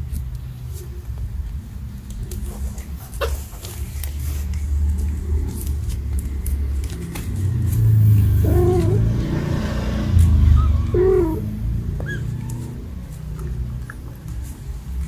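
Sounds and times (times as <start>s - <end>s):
cat meowing: 10.6s - 12.9s.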